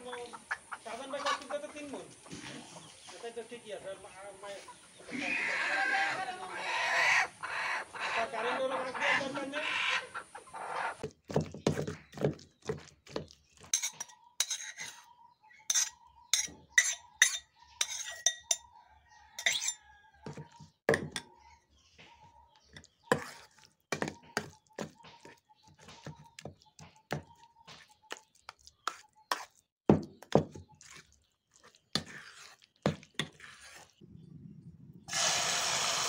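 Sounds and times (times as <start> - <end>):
spoon clinking on steel bowl: 13.7 - 15.0, 15.7 - 18.6, 19.4 - 19.8.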